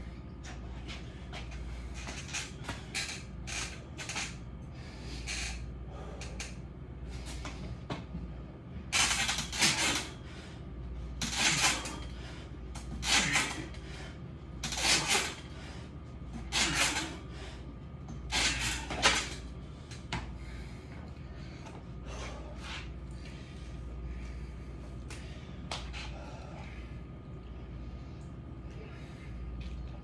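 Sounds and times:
steady low hum: 0.0 - 30.0
man breathing hard: 4.1 - 8.5, 10.0 - 10.9, 11.6 - 14.4, 15.2 - 29.7.

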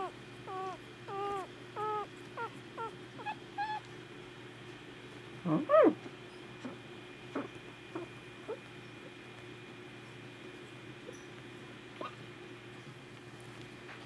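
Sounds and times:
puppy whimpering and yelping: 0.0 - 3.9, 5.6 - 6.0, 7.4 - 9.2
faint steady hum: 0.0 - 14.0.

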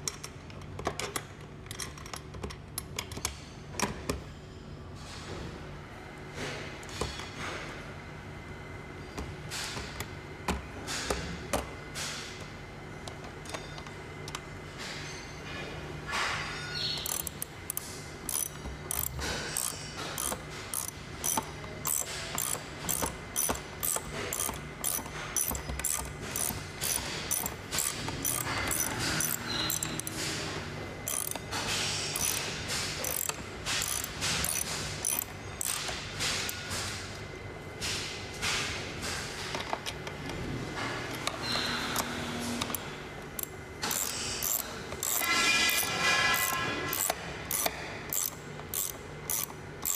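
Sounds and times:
ratchet wrench clicking: 17.0 - 30.1, 31.1 - 31.4, 32.1 - 35.9, 43.4 - 49.9.

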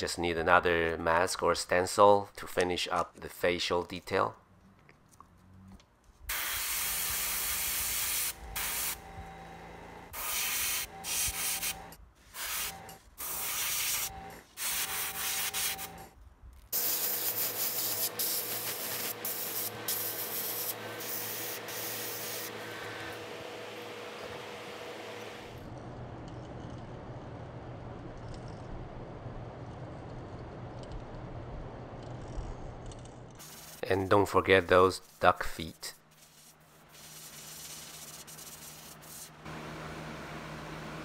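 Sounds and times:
airbrush hissing: 6.3 - 9.3, 10.1 - 16.0, 16.8 - 23.2, 33.4 - 34.0, 36.1 - 39.4.

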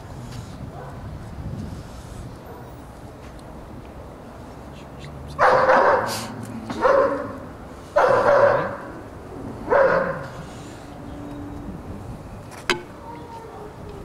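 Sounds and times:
dog barking: 0.7 - 1.1, 2.4 - 2.8, 5.4 - 7.4, 8.0 - 9.0, 9.7 - 10.4.

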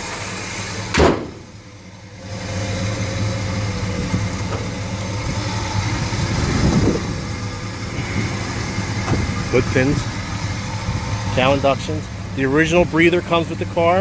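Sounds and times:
car engine idling: 0.0 - 14.0
car hood slammed shut: 0.9 - 1.5.

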